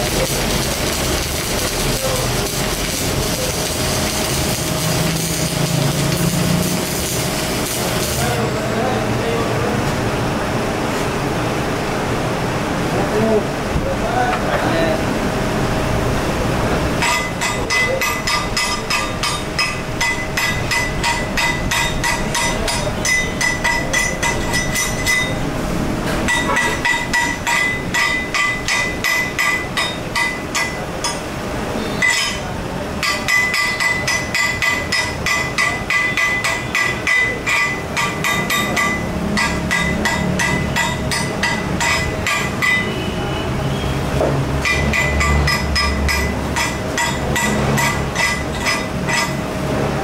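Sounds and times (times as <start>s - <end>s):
hammer striking steel: 17.0s - 25.4s, 26.2s - 43.1s, 44.2s - 49.4s.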